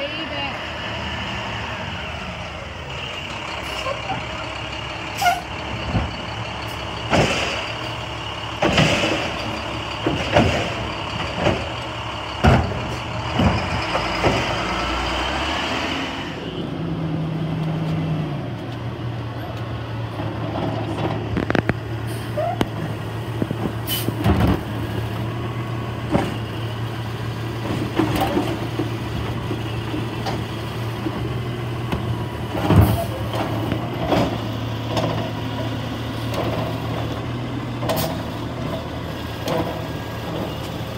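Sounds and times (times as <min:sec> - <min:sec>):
diesel engine running: 0:00.0 - 0:40.9
hydraulic arm clanks and bangs: 0:08.6 - 0:11.8, 0:12.4 - 0:14.6.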